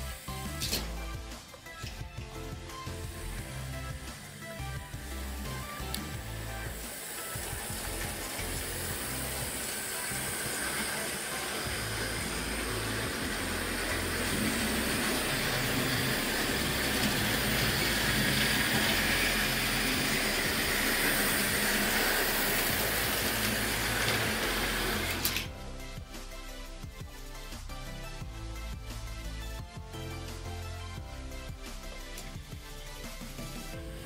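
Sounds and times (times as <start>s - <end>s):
model train whirring and rattling: 0.0s - 25.5s.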